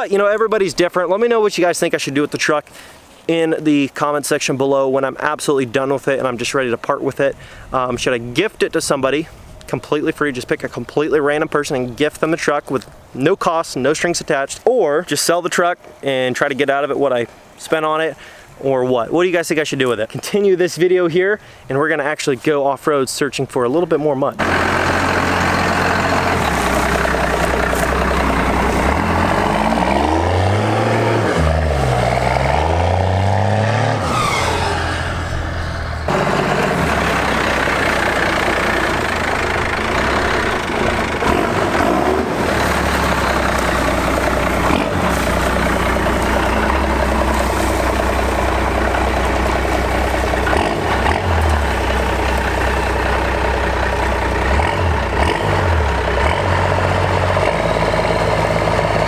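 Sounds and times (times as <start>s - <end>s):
diesel engine running: 24.4s - 59.0s.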